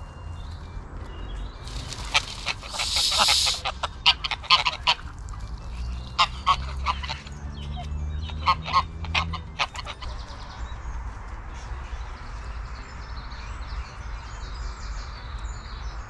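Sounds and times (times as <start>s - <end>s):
geese honking: 1.7s - 5.2s, 6.1s - 7.4s, 8.2s - 10.4s
brief rush of noise: 2.6s - 3.6s.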